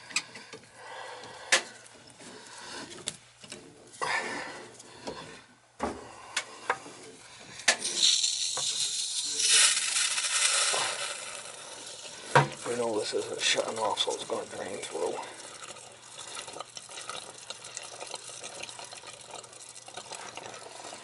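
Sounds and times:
water hissing out: 7.8 - 14.1.

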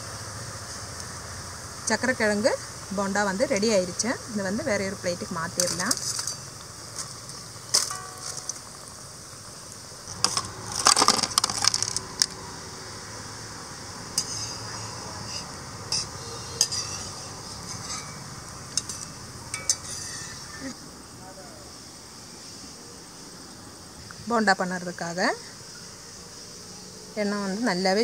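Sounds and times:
steady low hiss: 0.0 - 28.0
clatter of utensils: 5.6 - 8.7, 10.1 - 12.3, 14.2 - 20.8
metal skimmer clinking and scraping: 5.6 - 8.9, 10.1 - 12.2, 14.2 - 20.7.

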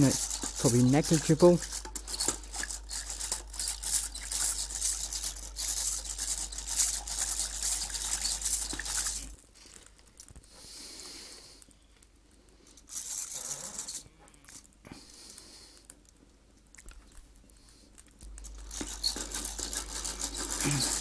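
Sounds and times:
rotary hand whisk rattling in pan: 0.0 - 9.4, 18.4 - 21.0.

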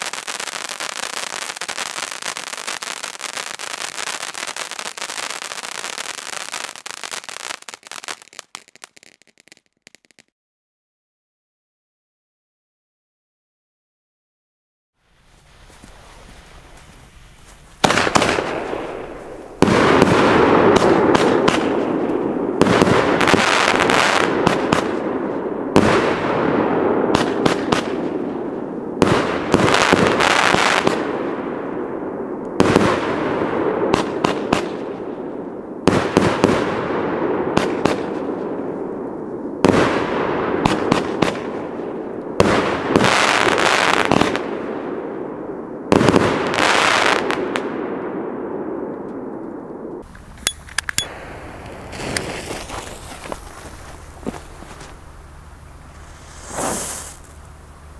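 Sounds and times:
firework bursts: 0.0 - 10.3, 15.2 - 31.2, 51.0 - 57.9
firework crackle and hiss: 0.0 - 10.3, 15.0 - 31.3, 32.6 - 44.8, 45.9 - 47.8, 51.1 - 57.9.

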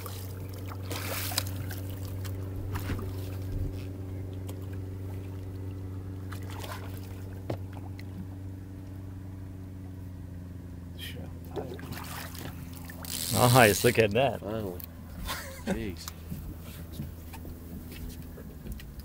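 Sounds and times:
fish splashing in water: 0.0 - 3.6, 4.4 - 8.2, 11.6 - 13.4
boat engine idling: 0.0 - 19.0.

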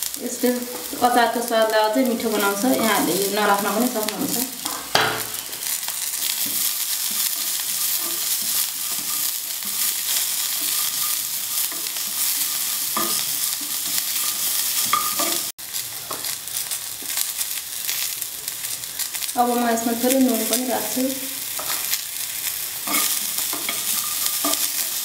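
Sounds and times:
onions frying in hot oil: 0.0 - 25.0
steel spoon scraping a pan: 2.1 - 15.5, 21.4 - 25.0.

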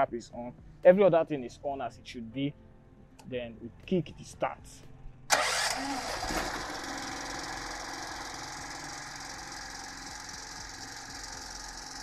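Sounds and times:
petrol generator engine running: 5.3 - 12.0.

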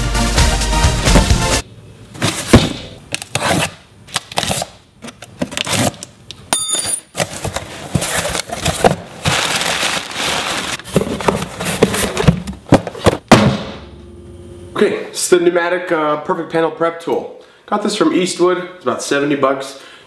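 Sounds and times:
packing paper rustling: 7.2 - 12.4
cardboard knocks and scrapes: 10.8 - 13.2.

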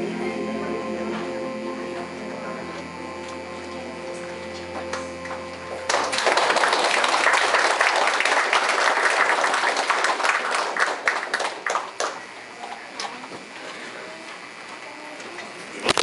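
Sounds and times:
held sung note: 0.0 - 7.1
audience applauding: 4.7 - 12.3.

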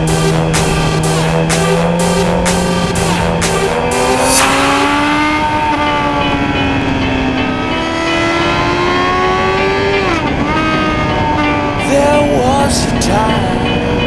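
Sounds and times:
motorcycle engine accelerating: 0.6 - 11.7.

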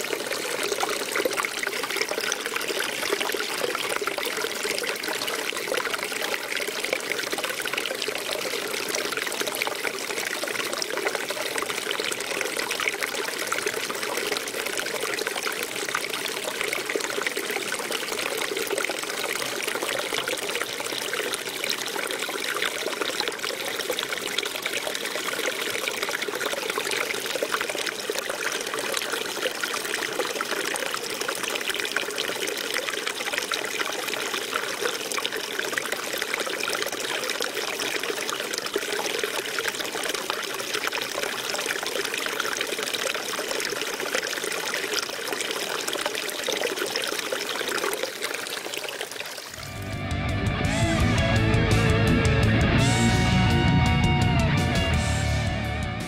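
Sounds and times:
stream splashing into pool: 0.0 - 51.1.

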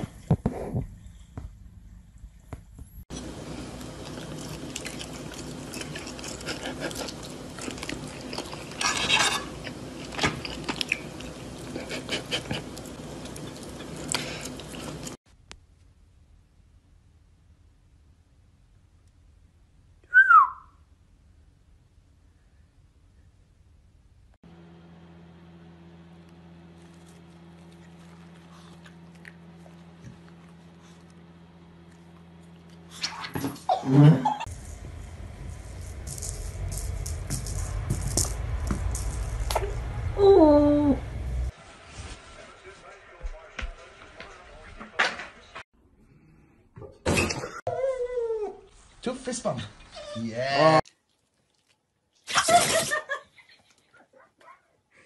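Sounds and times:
chewing: 3.1 - 15.2, 26.9 - 33.2, 50.8 - 52.3
fork scraping on a plate: 8.7 - 9.6
steady low hum: 34.3 - 43.9.

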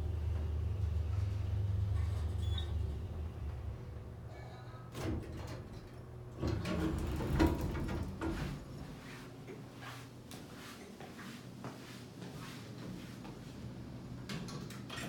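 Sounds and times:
elevator doors sliding open: 1.2 - 8.7
footsteps on tile floor: 9.0 - 13.6.

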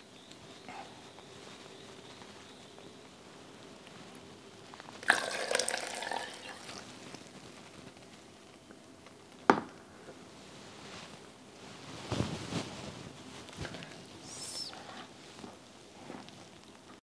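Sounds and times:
water pouring: 5.0 - 6.9.

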